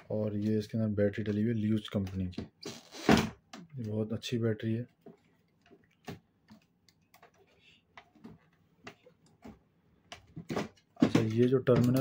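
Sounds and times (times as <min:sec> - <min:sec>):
plastic clicks and taps: 0:05.1 - 0:12.0.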